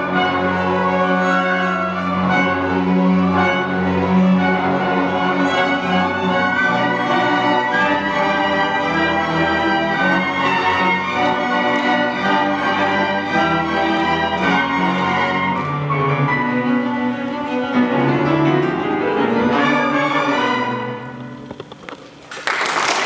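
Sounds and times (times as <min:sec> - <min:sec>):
orchestra playing closing chords: 0:00.0 - 0:21.5
applause: 0:22.2 - 0:23.0.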